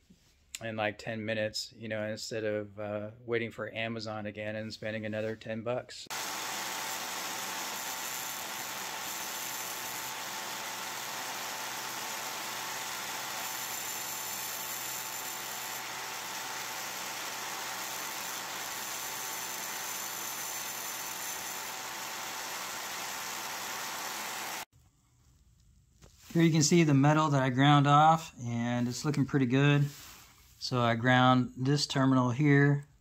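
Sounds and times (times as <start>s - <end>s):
angle grinder grinding metal: 6.1s - 24.7s.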